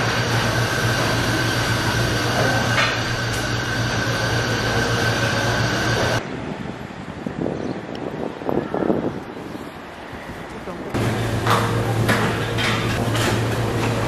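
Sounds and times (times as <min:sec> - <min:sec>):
mechanical drone with high whine: 0:00.0 - 0:06.2
faint wind noise: 0:06.2 - 0:11.0.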